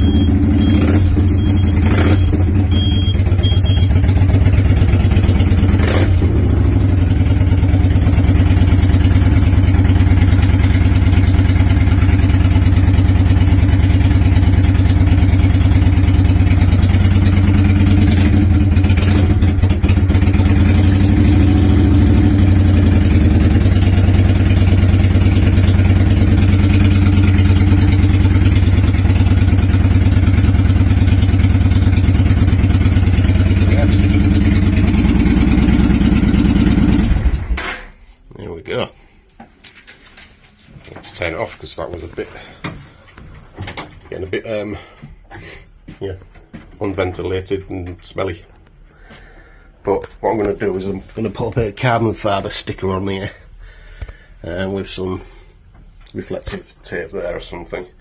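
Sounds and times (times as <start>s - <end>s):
motorcycle engine idling: 0.0s - 37.4s.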